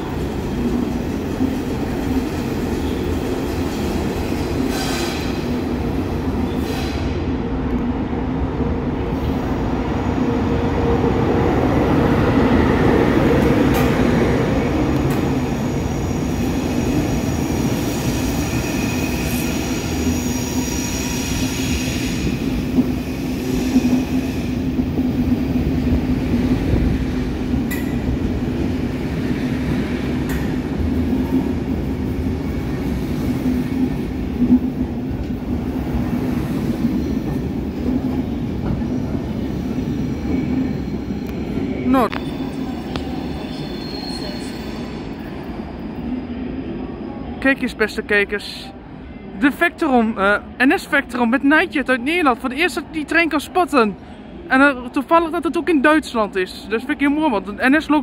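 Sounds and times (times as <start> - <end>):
electric locomotive passing: 0.0 - 49.7
high wheel squeal: 15.5 - 22.4, 39.9 - 45.2.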